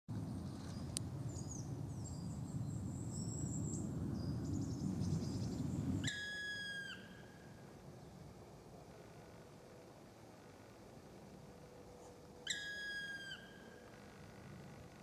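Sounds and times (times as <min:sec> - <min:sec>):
low rumbling noise: 0:00.1 - 0:06.0
woodpecker long call: 0:06.0 - 0:07.6, 0:12.4 - 0:14.5.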